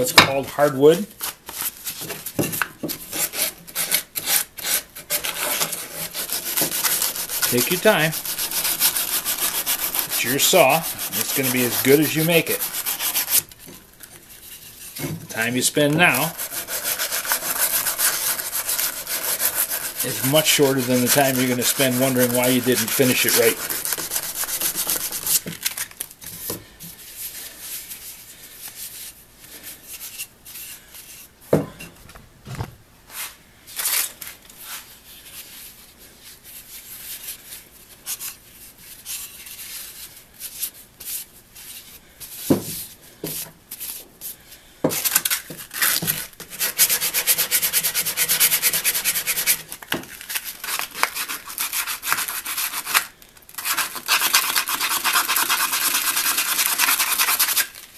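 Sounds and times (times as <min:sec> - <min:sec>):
sandpaper rubbing on wood: 0:03.1 - 0:13.5, 0:15.8 - 0:25.4, 0:45.9 - 0:49.7, 0:50.6 - 0:53.0, 0:53.6 - 0:57.7.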